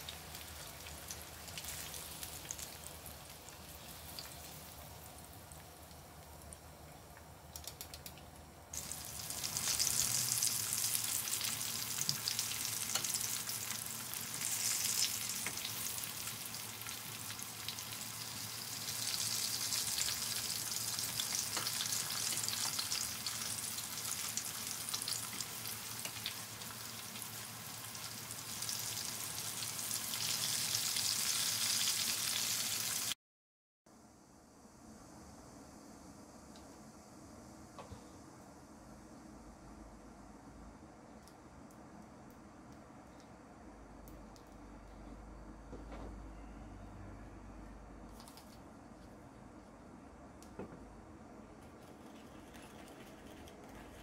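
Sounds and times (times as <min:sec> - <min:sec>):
oil sizzling while deep-frying: 0:00.0 - 0:07.2, 0:08.7 - 0:33.2.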